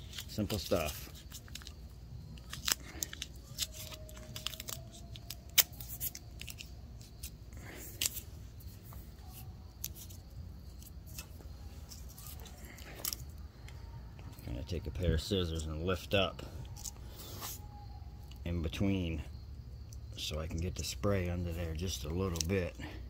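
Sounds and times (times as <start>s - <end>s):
tape crackling and clicking: 0.0s - 14.5s, 15.4s - 17.6s, 21.8s - 22.6s
tape snapping: 2.4s - 7.3s.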